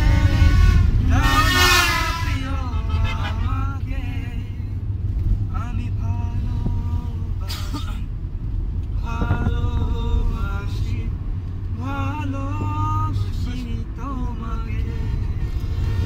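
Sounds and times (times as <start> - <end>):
car engine and tyres rumbling: 0.0 - 16.0
men singing: 2.3 - 4.6.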